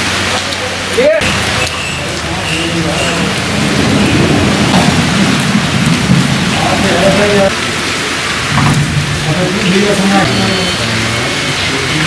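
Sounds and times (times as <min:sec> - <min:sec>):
heavy rain: 0:00.0 - 0:12.0
low rumble of thunder: 0:01.4 - 0:07.8, 0:08.4 - 0:10.0.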